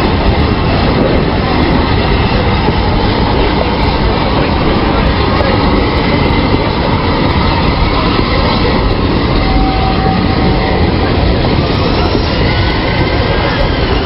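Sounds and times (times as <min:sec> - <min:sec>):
train rumbling past on rails: 0:00.0 - 0:14.0.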